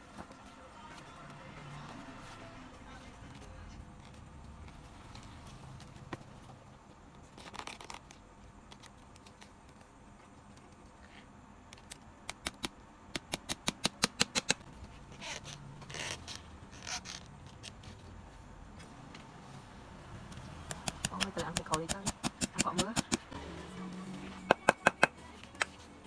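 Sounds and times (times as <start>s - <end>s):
leather scraping and rubbing: 14.8s - 18.0s.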